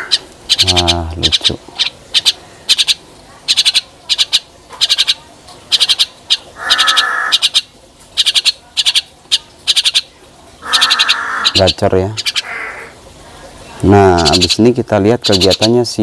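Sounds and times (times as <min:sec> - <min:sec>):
harsh bird call: 0:00.0 - 0:09.1, 0:09.7 - 0:13.0
birds clicking chatter: 0:00.0 - 0:13.0, 0:13.6 - 0:16.0.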